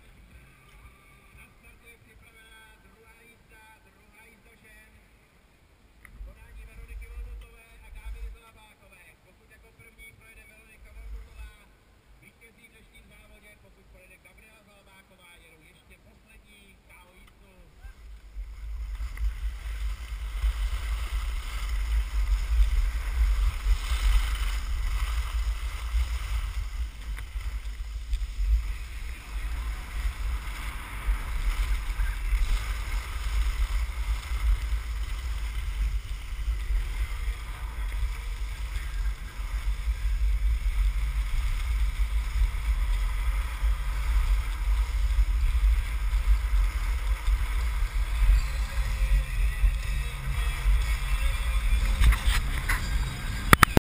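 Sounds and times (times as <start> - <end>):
skis sliding on snow: 16.9 - 53.8
wind buffeting microphone: 17.8 - 53.8.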